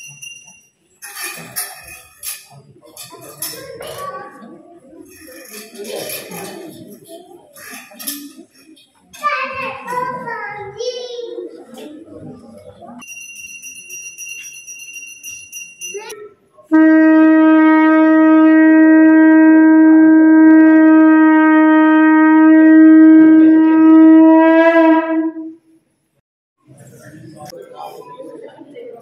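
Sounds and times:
small bell ringing: 0.0s - 0.8s, 13.0s - 16.3s
conch shell blown: 16.7s - 25.6s.

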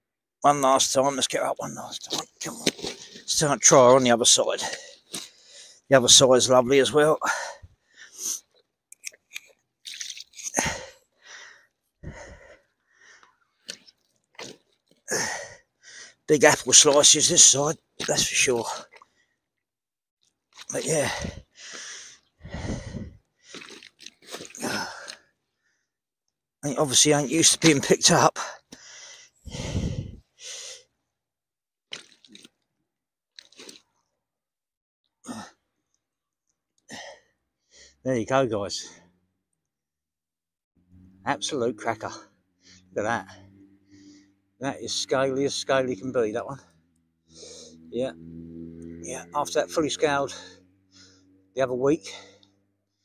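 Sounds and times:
wet squishing: 8.5s - 11.0s, 12.4s - 15.5s, 16.6s - 19.3s, 20.2s - 25.4s, 31.9s - 32.7s, 33.3s - 34.0s
handling rustles and clicks: 8.9s - 10.6s.

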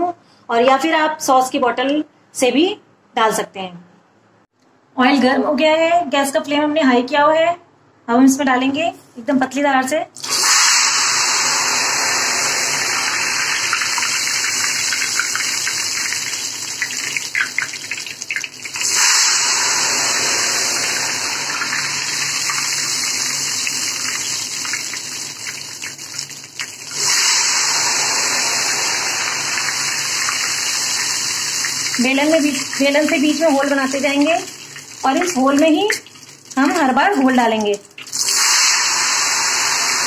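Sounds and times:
batter sizzling in hot oil: 10.2s - 37.3s, 37.9s - 40.0s.

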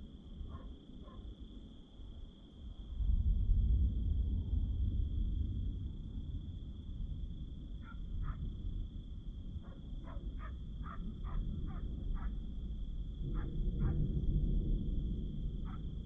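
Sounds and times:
distant thunder rumbling: 3.0s - 16.0s.

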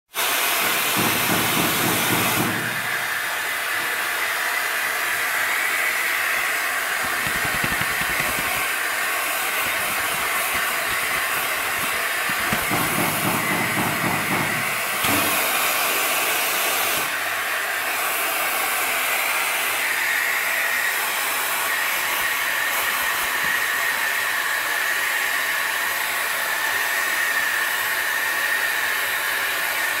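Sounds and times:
compressed air hissing: 6.8s - 16.1s.

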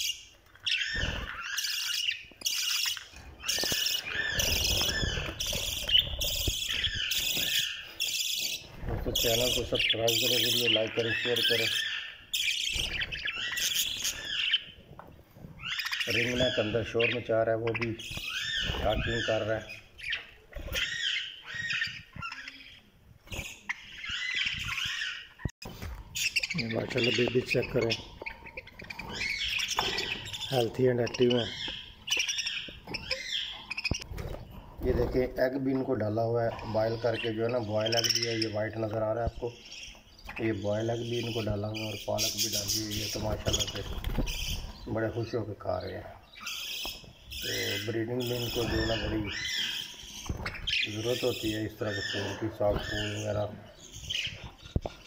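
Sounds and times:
budgerigars chattering and chirping: 0.0s - 14.9s, 15.5s - 55.0s.

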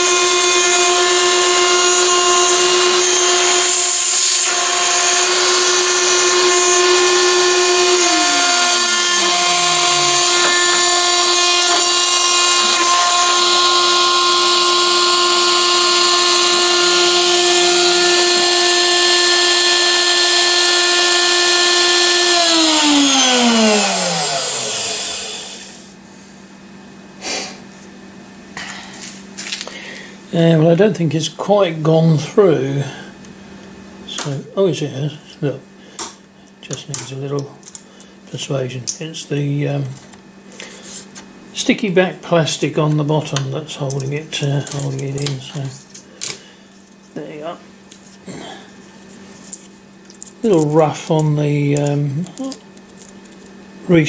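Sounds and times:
cnc router spindle whine: 0.0s - 26.0s.

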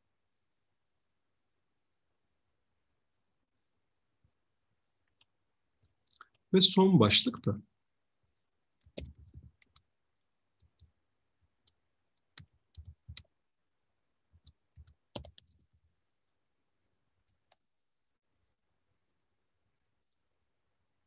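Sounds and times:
faint clicks and soft knocks: 3.4s - 6.5s, 8.4s - 13.4s, 19.8s - 20.4s.

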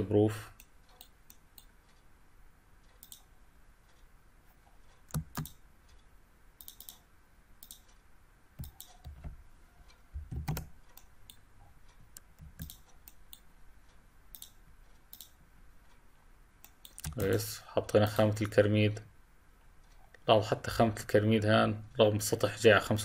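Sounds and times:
faint mouse clicking: 0.6s - 2.1s, 2.8s - 8.0s, 8.6s - 16.0s, 16.6s - 17.4s.

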